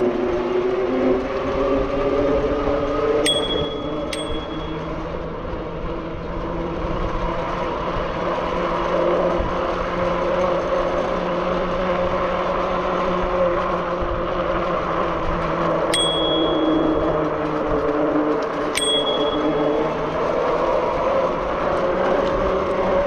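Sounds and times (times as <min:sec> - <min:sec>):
bicycle bell ding: 0:03.3 - 0:05.2, 0:16.0 - 0:17.7, 0:18.8 - 0:20.5.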